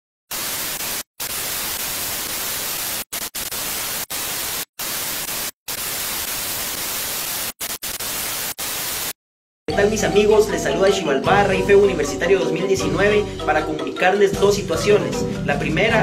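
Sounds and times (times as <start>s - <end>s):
television static hiss: 0.3s - 9.1s.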